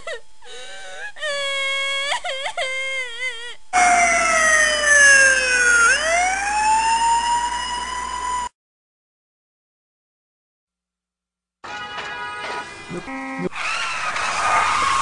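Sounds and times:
emergency vehicle siren: 3.8 - 8.5
pitched wailing tones: 3.8 - 8.5.

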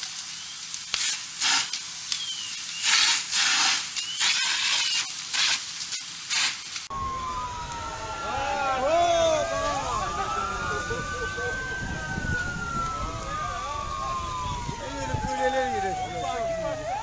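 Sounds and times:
house fire crackling and hissing: 0.0 - 17.0
wailing siren: 6.9 - 17.0.

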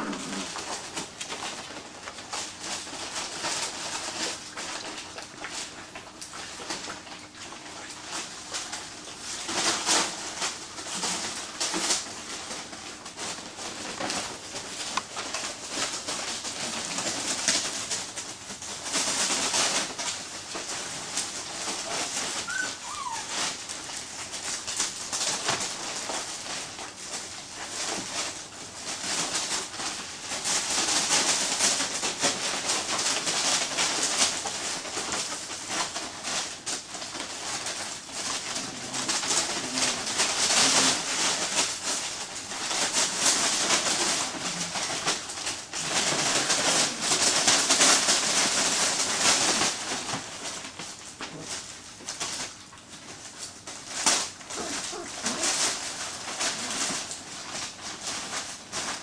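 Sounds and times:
plastic and paper crinkling: 0.0 - 59.0
puppy squeak: 22.4 - 23.3.

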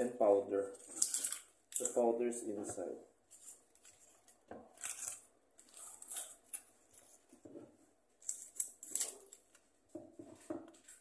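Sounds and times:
plastic packet crinkling: 0.7 - 2.2, 3.3 - 7.2.

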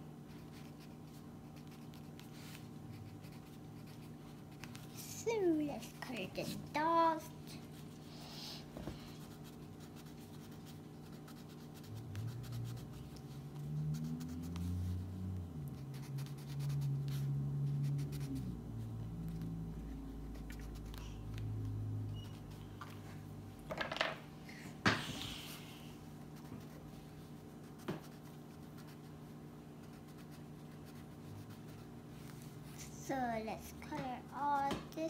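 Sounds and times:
crayon scratching on paper: 0.3 - 6.6, 9.0 - 15.1, 15.8 - 18.9, 19.8 - 21.4, 26.3 - 29.1, 29.8 - 32.0.

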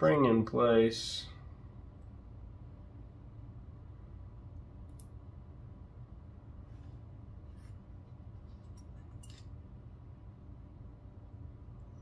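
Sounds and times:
low steady hum: 0.0 - 12.0
knife parts clicking and scraping: 8.7 - 9.5.

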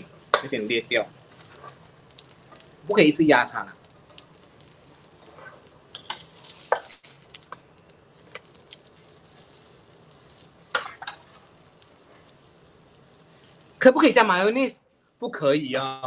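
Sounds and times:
burger patty sizzling: 0.0 - 15.6
spatula scraping and tapping pan: 0.2 - 0.7, 1.3 - 2.7, 4.1 - 7.7, 10.3 - 11.4.

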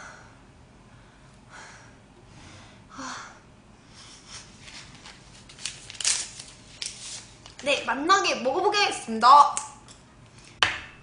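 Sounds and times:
woman breathing: 0.0 - 4.5.

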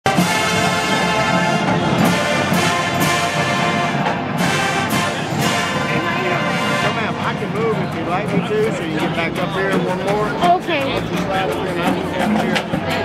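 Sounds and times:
marching band playing: 0.0 - 13.0.

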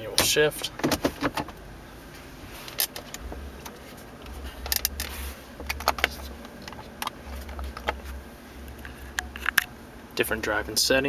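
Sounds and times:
low hum: 1.5 - 11.0.

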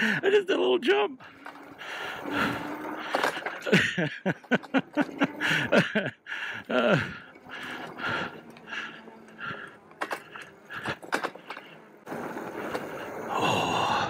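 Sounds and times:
e-bike rattling and knocking: 1.2 - 13.1
groan-like falling sounds: 13.3 - 14.0.

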